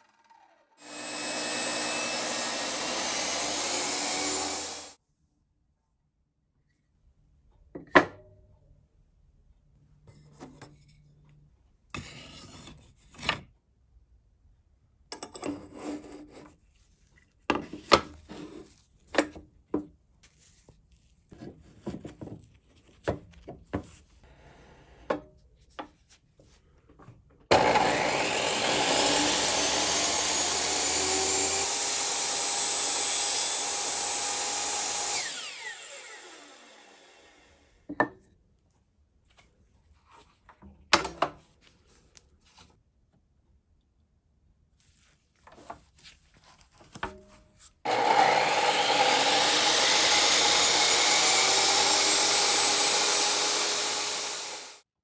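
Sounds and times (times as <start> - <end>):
table saw motor running: 0.0 - 5.0, 27.5 - 37.7, 47.9 - 54.8.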